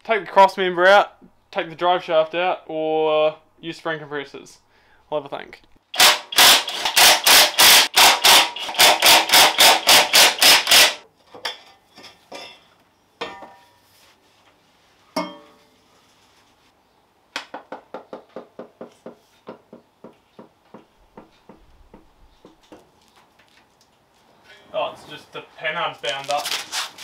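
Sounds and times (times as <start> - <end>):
rapid hammer blows on metal: 6.0 - 11.0
tools clanking on metal: 11.2 - 13.7, 15.2 - 15.6.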